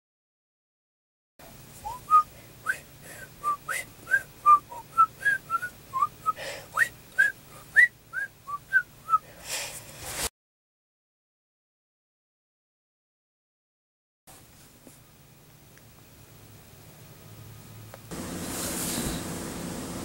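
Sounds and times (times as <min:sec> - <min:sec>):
breathy puffs: 0:01.8 - 0:05.4, 0:06.2 - 0:07.8, 0:09.1 - 0:10.2
person whistling short notes: 0:01.8 - 0:09.2.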